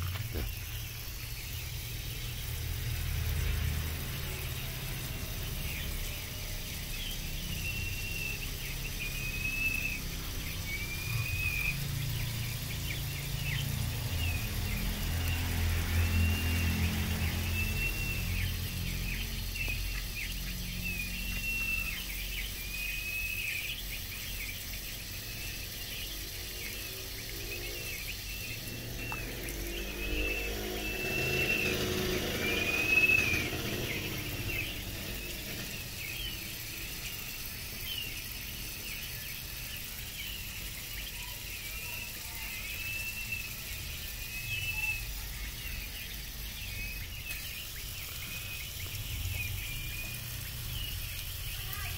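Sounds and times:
water spraying onto floor: 0.0s - 51.9s.

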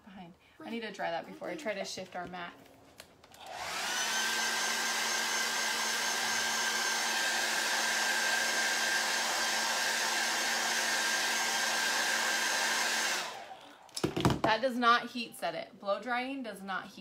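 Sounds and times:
hair dryer running: 3.3s - 14.3s.

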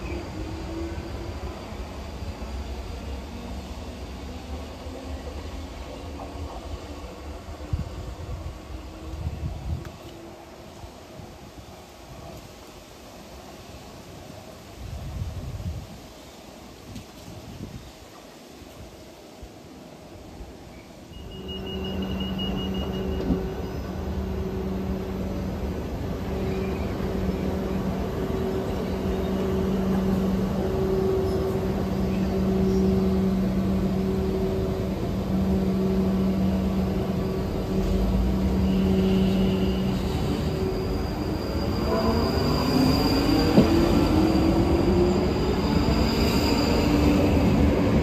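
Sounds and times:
train wheels rumbling on rails: 0.0s - 19.0s, 20.4s - 48.0s
brief high tone: 21.1s - 24.0s.

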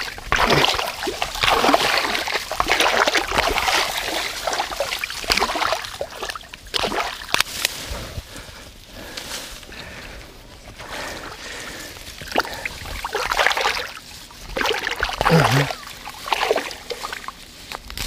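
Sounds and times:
water splashing and sloshing: 0.0s - 7.8s, 10.9s - 17.8s.

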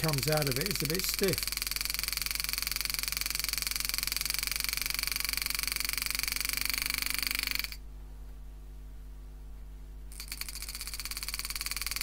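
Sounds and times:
low hum: 0.0s - 1.6s.

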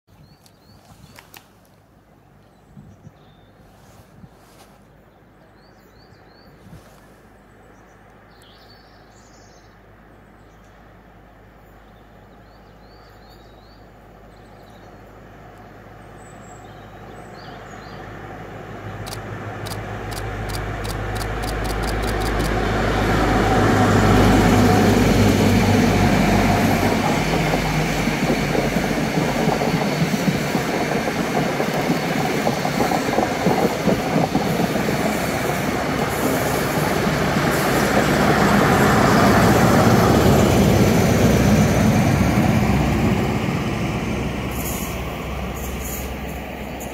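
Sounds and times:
train coaches rumbling by: 10.8s - 46.9s
diesel locomotive passing: 13.8s - 46.9s
quick evenly spaced clicks: 19.1s - 22.6s.

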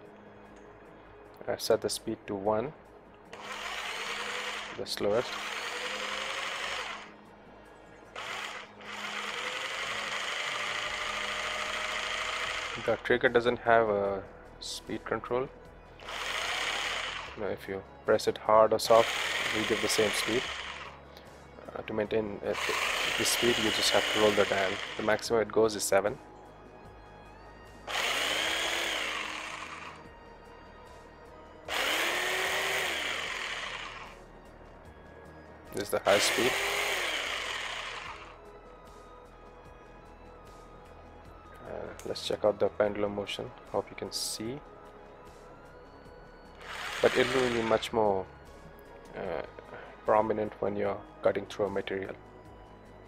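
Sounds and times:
jigsaw motor buzzing: 3.4s - 7.1s, 8.2s - 13.1s, 16.0s - 17.4s, 18.9s - 21.0s, 22.5s - 25.3s, 27.9s - 30.1s, 31.7s - 34.2s, 36.0s - 38.3s, 46.6s - 47.9s.

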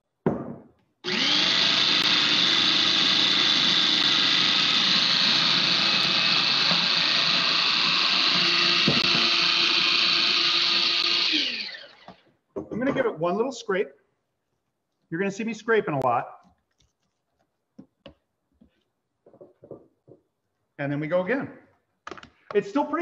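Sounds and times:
food processor motor running: 1.0s - 12.1s.

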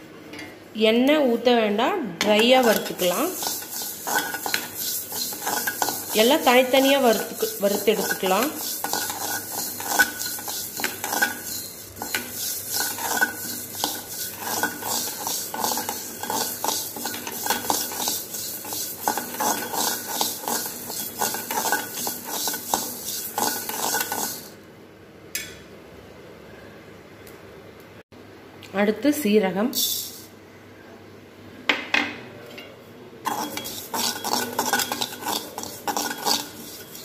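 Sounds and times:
metal spatula scraping a pan: 2.2s - 24.6s, 33.3s - 37.0s.

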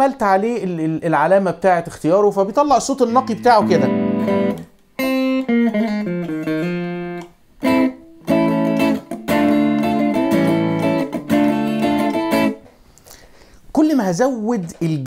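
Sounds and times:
clean electric guitar: 3.0s - 12.6s.

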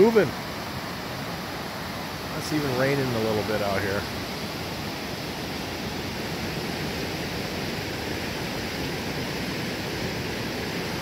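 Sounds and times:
white water rushing: 0.0s - 11.0s.

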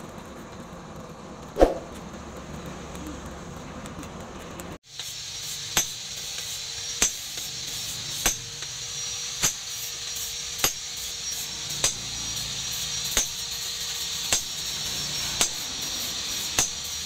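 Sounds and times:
forge fire rushing: 0.4s - 2.7s
hammer striking metal on anvil: 5.8s - 6.0s, 7.0s - 8.6s, 9.4s - 9.7s, 14.3s - 14.8s.

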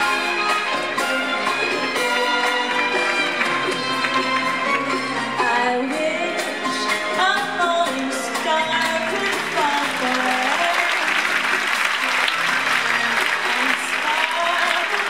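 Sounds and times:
audience applause: 0.0s - 5.3s, 9.1s - 15.0s
performance music with melody: 0.0s - 15.0s.

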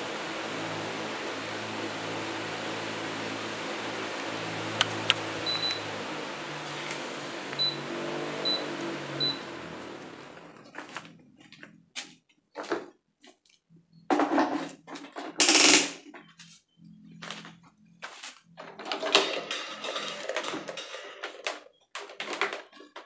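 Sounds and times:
electric fan running: 0.0s - 11.3s.

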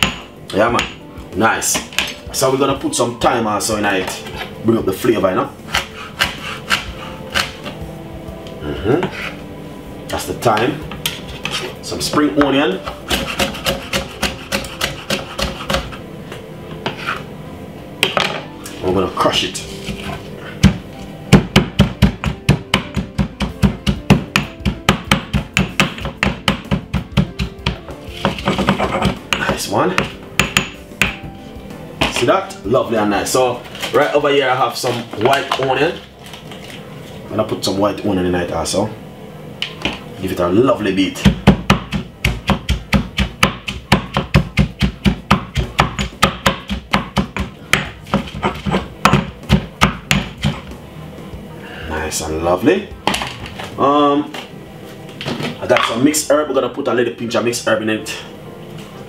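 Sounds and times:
pestle pounding in mortar: 5.7s - 7.6s, 12.4s - 16.0s, 19.9s - 31.2s, 41.2s - 50.7s.

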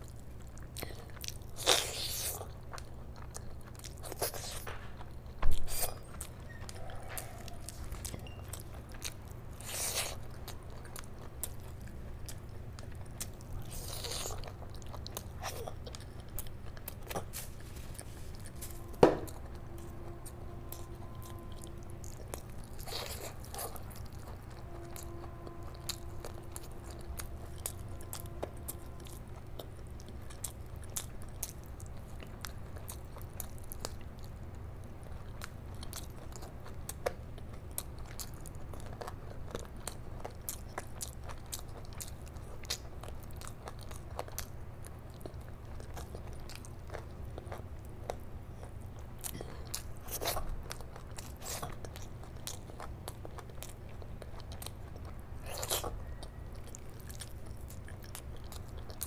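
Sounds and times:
wet chewing and biting: 0.0s - 34.4s, 35.1s - 59.0s.

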